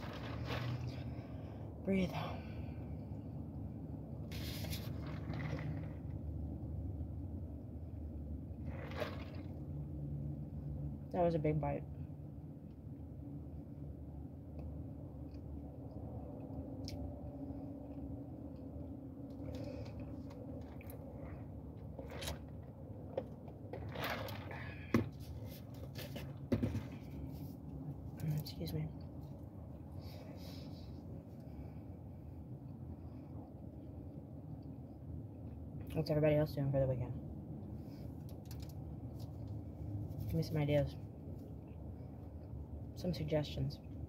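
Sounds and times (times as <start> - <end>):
steady low hum: 0.0 - 44.0
sipping through a straw: 4.3 - 6.0, 8.6 - 9.6
car engine hum from inside: 33.4 - 44.0.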